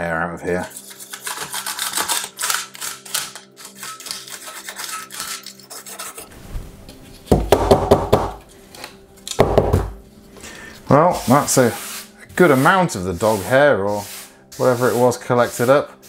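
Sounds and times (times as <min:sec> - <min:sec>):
toothbrush scrubbing metal plate: 0:00.6 - 0:06.3, 0:11.0 - 0:16.0.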